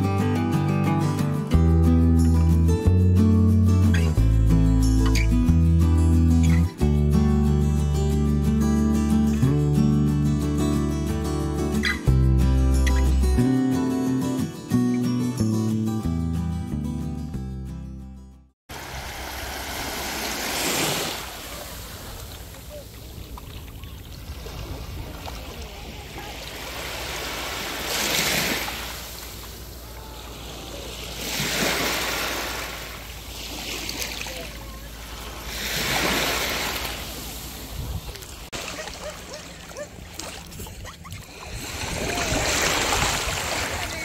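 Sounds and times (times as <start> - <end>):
small waves on pebbly shore: 18.7 - 40.6, 41.2 - 44.0.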